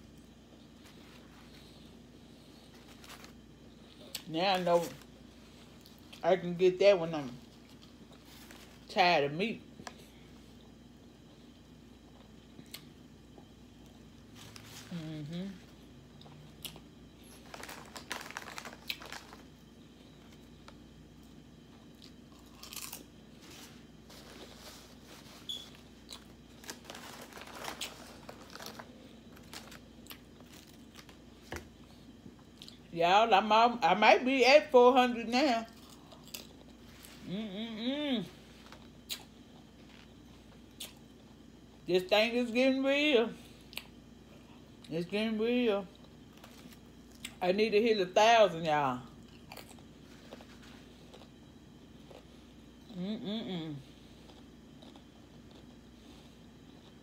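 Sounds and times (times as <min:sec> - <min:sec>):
low steady hum: 0:00.0 - 0:57.0
chewing a sandwich: 0:07.4 - 0:08.9, 0:09.8 - 0:32.8, 0:35.7 - 0:37.2, 0:38.6 - 0:41.8, 0:49.2 - 0:57.0
crunching potato chips: 0:16.2 - 0:32.8, 0:35.6 - 0:37.3, 0:49.2 - 0:52.4, 0:54.2 - 0:57.0
paper wrapper crinkling: 0:17.3 - 0:19.6, 0:23.4 - 0:31.2.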